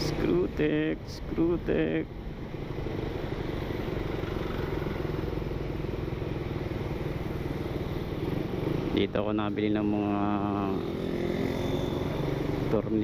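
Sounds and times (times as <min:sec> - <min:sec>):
road and wind noise: 0:00.0 - 0:13.0
motorcycle engine running: 0:02.5 - 0:09.0.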